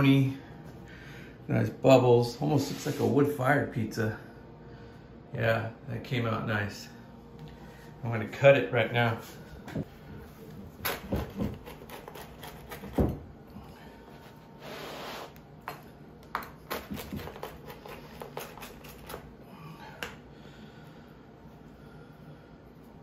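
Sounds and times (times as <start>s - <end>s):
pizza cutter crunching crust: 10.8s - 13.2s, 16.3s - 19.4s
pizza cutter scraping: 11.2s - 13.0s, 16.6s - 19.3s.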